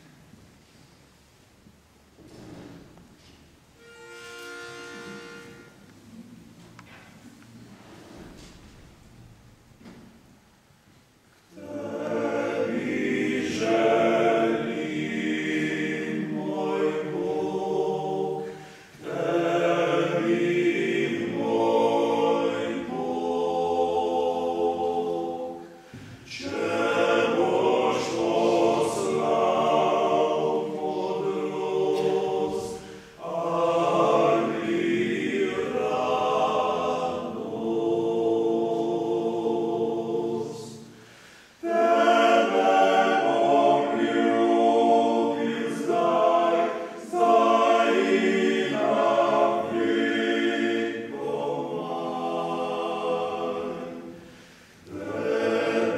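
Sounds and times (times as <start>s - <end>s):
male choir singing a cappella: 11.5s - 55.9s.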